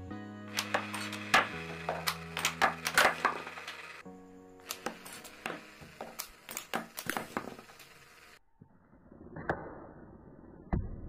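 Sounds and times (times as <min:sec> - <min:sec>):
toy launcher clicking: 0:00.5 - 0:04.0, 0:04.6 - 0:08.4.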